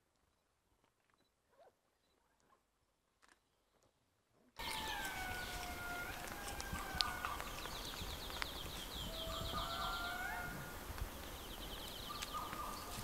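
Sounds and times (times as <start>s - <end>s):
bird trilling high chirps: 7.0s - 10.6s.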